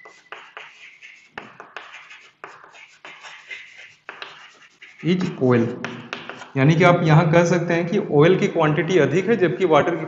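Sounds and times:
chalk scratching on a chalkboard: 0:00.0 - 0:06.6.

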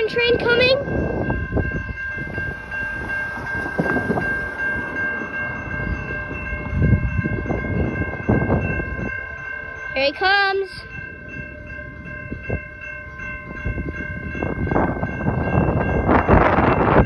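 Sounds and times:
railroad crossing bell ringing: 0:00.0 - 0:17.0.

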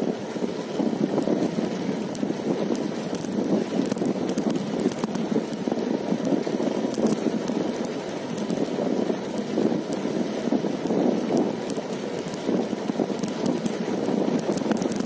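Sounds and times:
wind buffeting microphone: 0:00.0 - 0:15.0
faint ticks: 0:01.2 - 0:15.0.

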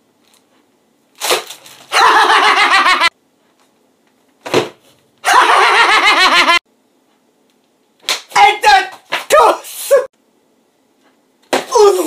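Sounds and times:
man laughing hysterically: 0:01.9 - 0:03.1, 0:05.2 - 0:06.6.

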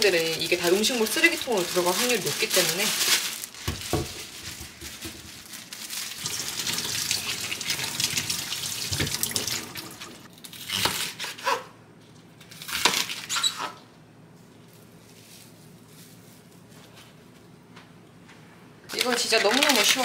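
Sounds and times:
vegetables rustling and splashing: 0:00.0 - 0:10.3, 0:18.9 - 0:20.0
kitchen tap running: 0:06.2 - 0:10.3.

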